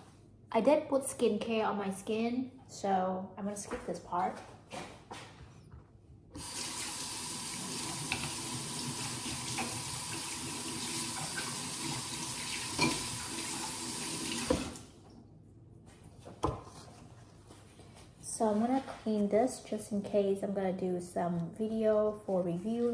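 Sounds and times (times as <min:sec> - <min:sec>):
tap water running into sink: 0:06.4 - 0:15.0.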